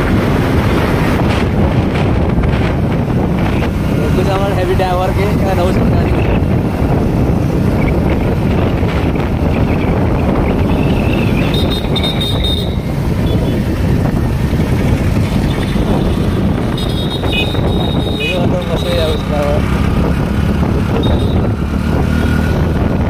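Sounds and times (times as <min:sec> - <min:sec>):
motorcycle engine running: 0:00.0 - 0:23.0
wind buffeting microphone: 0:00.0 - 0:23.0.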